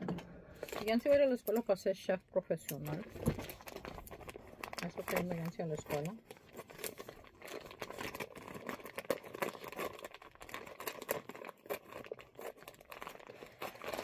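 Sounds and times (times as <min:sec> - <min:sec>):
plastic bag crinkling: 0:00.5 - 0:01.9, 0:02.5 - 0:14.0.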